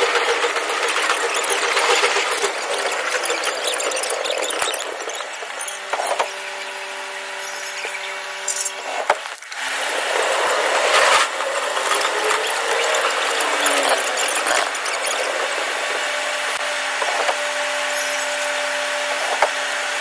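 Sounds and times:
train running noise: 0:00.0 - 0:19.6
steady hum of held tones: 0:17.5 - 0:19.1.

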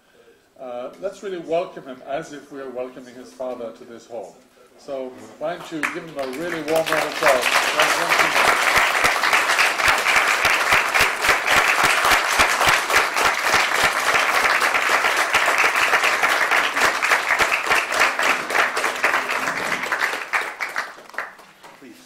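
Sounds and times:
audience applause: 0:05.6 - 0:21.8.

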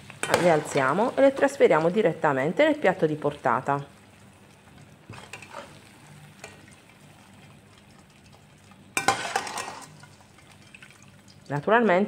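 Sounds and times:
slices sizzling in oil: 0:00.0 - 0:11.6
metal skimmer scraping a pan: 0:05.1 - 0:05.8, 0:09.0 - 0:10.2.

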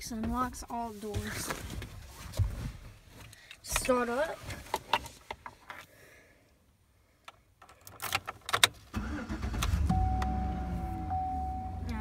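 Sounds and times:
truck engine starting and idling: 0:08.9 - 0:12.0.

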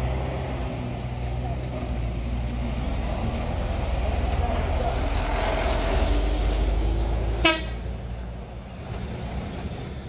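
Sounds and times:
truck engines rumbling past: 0:00.0 - 0:10.0
short sharp horn toot: 0:07.4 - 0:07.8.

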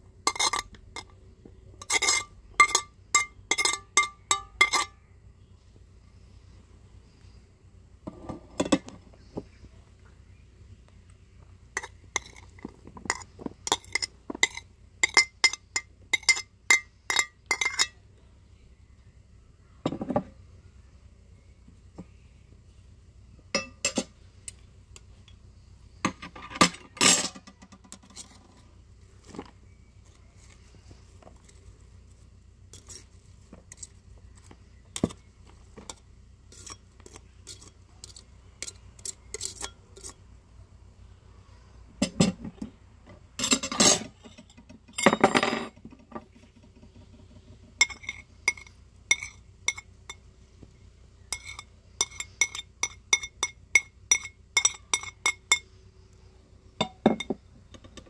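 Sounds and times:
utensil clinking against dish: 0:00.3 - 0:01.1, 0:01.8 - 0:05.0, 0:11.8 - 0:18.0, 0:23.6 - 0:25.4, 0:43.4 - 0:46.2, 0:47.8 - 0:50.2, 0:51.3 - 0:55.8, 0:56.8 - 0:58.0.

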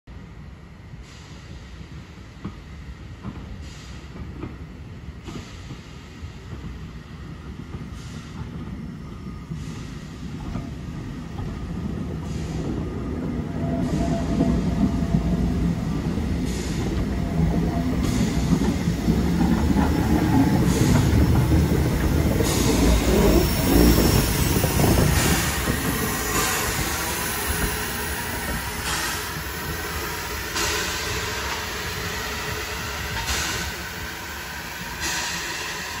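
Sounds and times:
wheels rumbling on rails: 0:11.3 - 0:30.0
steam tank engine passing: 0:11.8 - 0:36.0.

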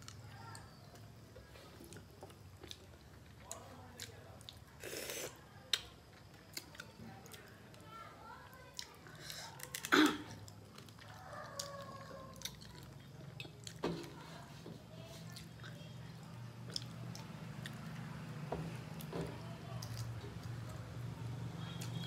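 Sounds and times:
chewing and mouth sounds: 0:01.8 - 0:07.6, 0:08.6 - 0:14.2, 0:15.2 - 0:18.1.

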